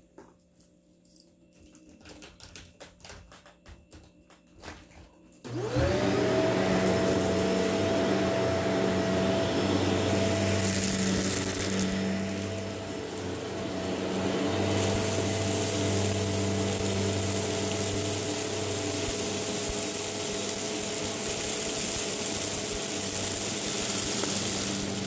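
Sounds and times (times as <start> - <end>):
vacuum cleaner motor whining: 5.4 - 25.0.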